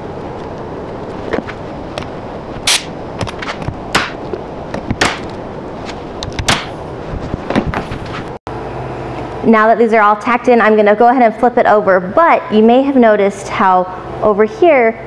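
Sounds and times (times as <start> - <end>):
nail gun firing staples: 2.7 - 4.2.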